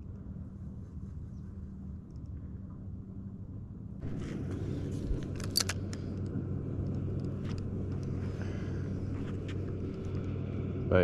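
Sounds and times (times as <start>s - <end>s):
motor droning: 0.2s - 11.0s
handling clicks: 5.1s - 8.1s.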